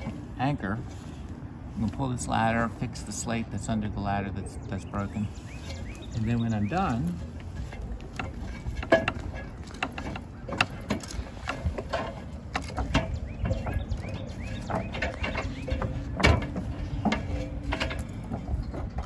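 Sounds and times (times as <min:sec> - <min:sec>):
metal hardware and ladder clattering: 0:04.7 - 0:19.0.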